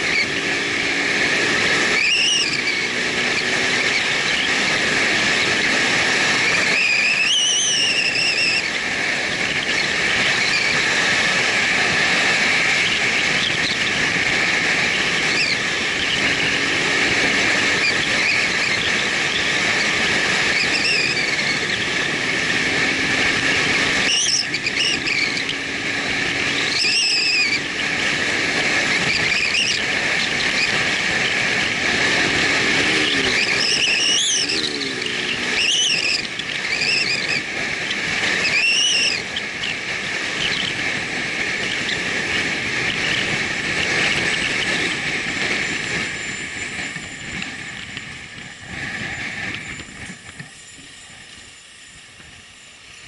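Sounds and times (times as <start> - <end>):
motorcycle engine: 0.0 - 53.0
wind noise: 0.0 - 53.0
brief high squeals: 6.7 - 8.7, 32.9 - 37.5, 38.4 - 39.3.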